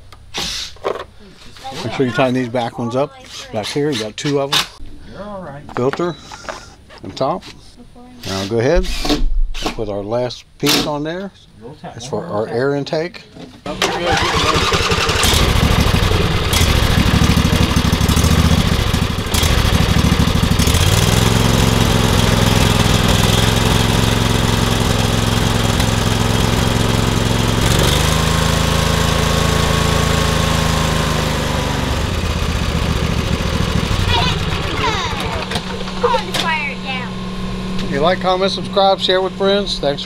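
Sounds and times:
mower engine running: 13.7 - 40.0.

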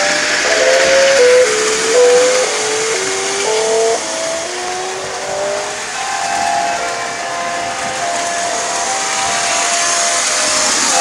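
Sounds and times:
electronic tones stepping in pitch: 0.0 - 11.0
steam hiss: 0.0 - 11.0.

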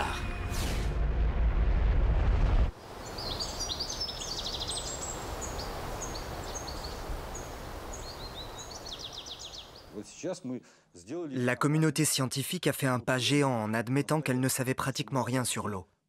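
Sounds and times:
deep rumble: 0.0 - 2.8
soft forest hiss: 2.8 - 10.3
songbirds chirping and trilling: 2.9 - 10.0.

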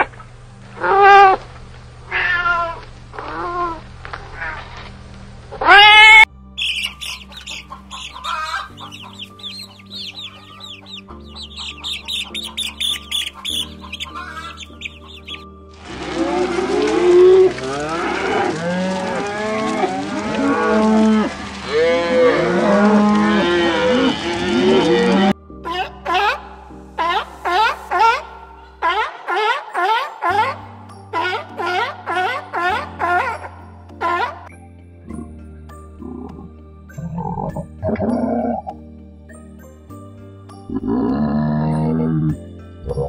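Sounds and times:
background music: 5.3 - 43.0
chicks peeping: 6.6 - 15.4
cattle mooing: 6.8 - 25.4.

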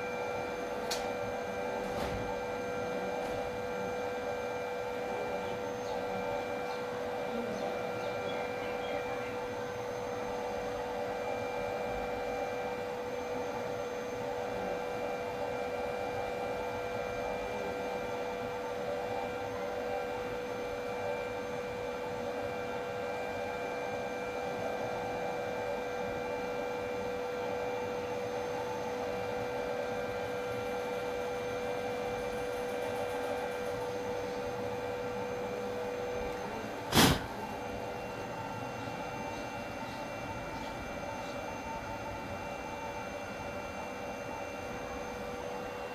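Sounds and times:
electric blower humming and whining: 0.0 - 45.9.

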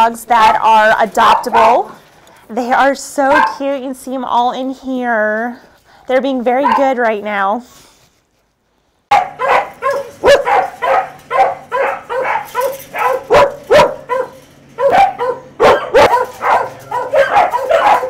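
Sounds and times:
dogs barking: 1.2 - 1.9, 3.3 - 3.7, 6.6 - 7.0, 9.1 - 18.0.

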